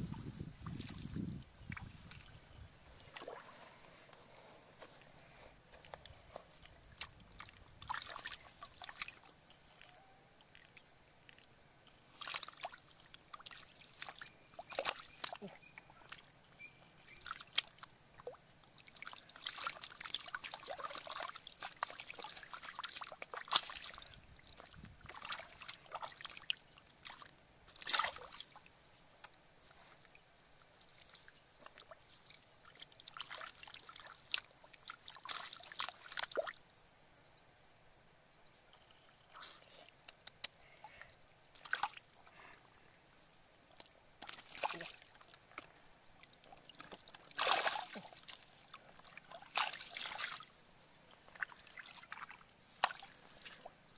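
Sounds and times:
hands splashing in shallow water: 12.1s - 15.5s, 19.0s - 28.6s, 46.7s - 50.5s
water trickling: 17.1s - 29.0s.

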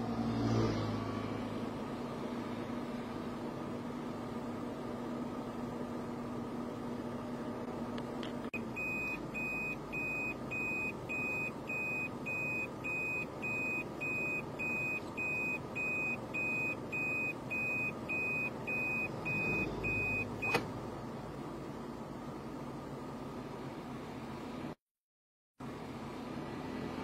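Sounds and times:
electronic warning beeps: 8.8s - 20.6s.

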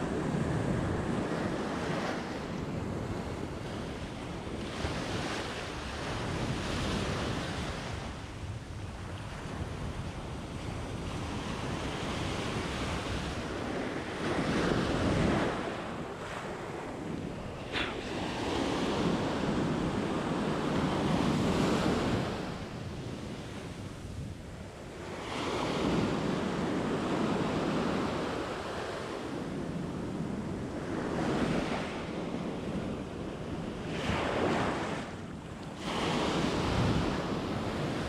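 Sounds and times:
ocean surf breaking on sand: 0.0s - 38.0s.

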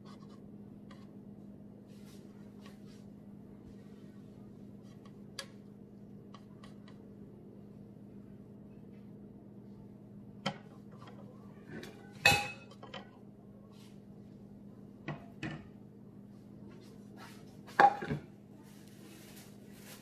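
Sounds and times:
dishes clinking: 11.8s - 13.2s.

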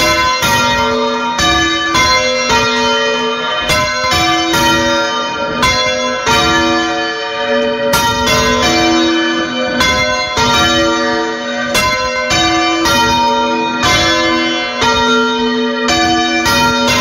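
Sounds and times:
church bells ringing: 0.0s - 17.0s.

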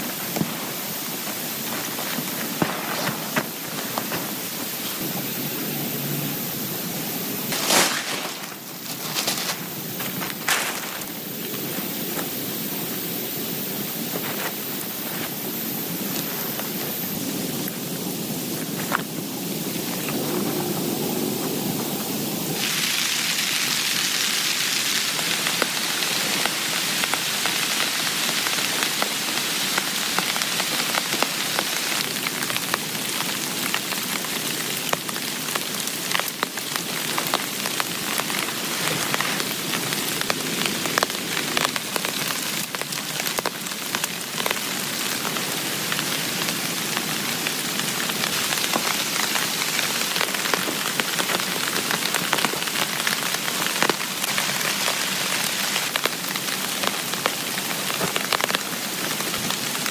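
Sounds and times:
heavy rain on a tent: 0.0s - 59.9s
raindrops tapping: 25.0s - 59.9s.

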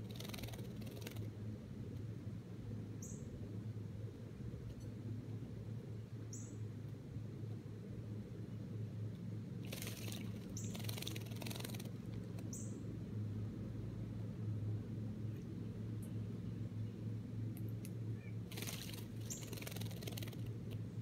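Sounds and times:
steady low hum: 0.0s - 21.0s
bird splashing water: 9.6s - 12.4s, 18.5s - 20.6s.

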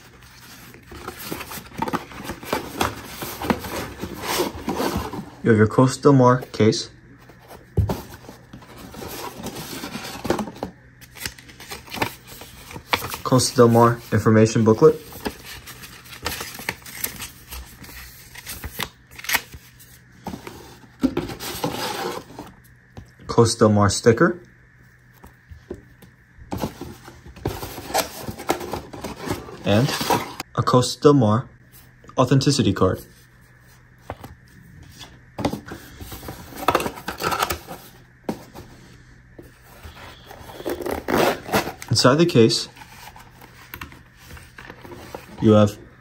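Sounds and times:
paper and cardboard rustling: 0.0s - 5.4s, 7.2s - 22.5s, 26.5s - 30.4s, 39.4s - 45.8s
cardboard box scraping and rustling: 0.3s - 5.4s, 7.3s - 14.1s, 20.2s - 22.5s.

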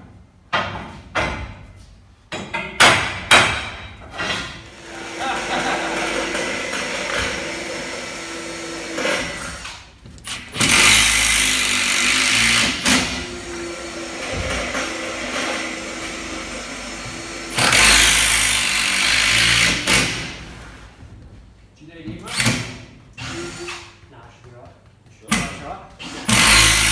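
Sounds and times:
cordless drill driving screws: 4.7s - 20.2s, 22.3s - 24.0s, 26.0s - 26.9s.

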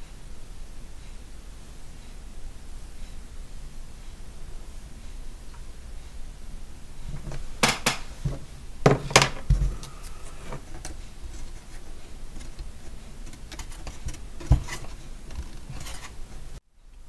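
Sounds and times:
quiet handling: 7.0s - 16.6s.

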